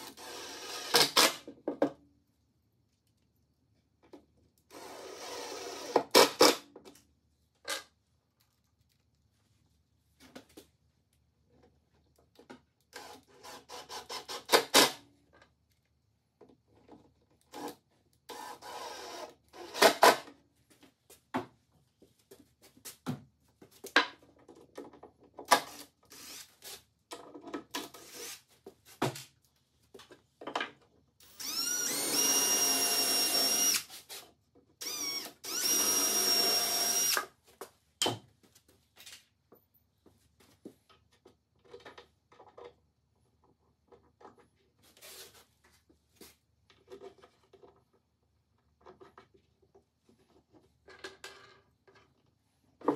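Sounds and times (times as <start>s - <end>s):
cordless drill whining: 0.0s - 1.0s, 4.7s - 6.0s, 25.7s - 26.4s, 31.2s - 33.9s, 34.8s - 37.3s.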